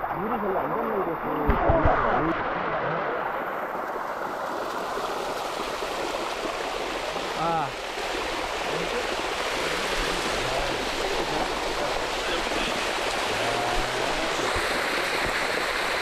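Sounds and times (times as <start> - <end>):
water rushing down cascade: 0.0 - 16.0
faint voices: 10.2 - 15.3.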